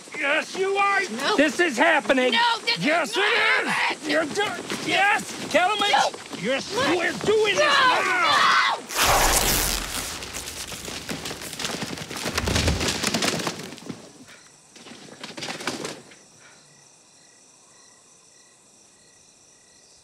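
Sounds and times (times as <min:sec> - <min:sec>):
crickets chirping faintly: 0:00.0 - 0:20.0
banknotes rustling and clattering: 0:10.0 - 0:14.2, 0:14.8 - 0:16.2.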